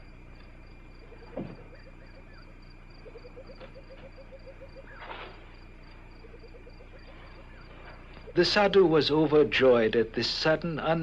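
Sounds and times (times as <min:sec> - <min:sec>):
low animal chirps: 0:00.9 - 0:08.6
brief rustle: 0:05.0 - 0:05.4.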